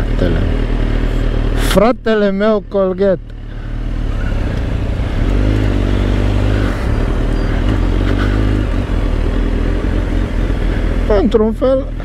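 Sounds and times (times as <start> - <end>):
motorcycle engine pulling away: 3.4 - 11.3.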